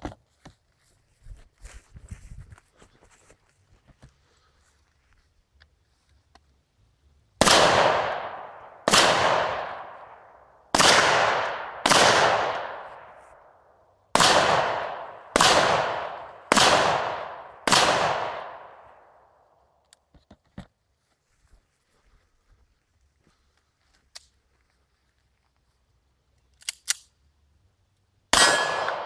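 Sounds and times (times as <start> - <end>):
rifle shots with echo: 7.4 - 13.2, 14.1 - 19.2, 28.3 - 29.0.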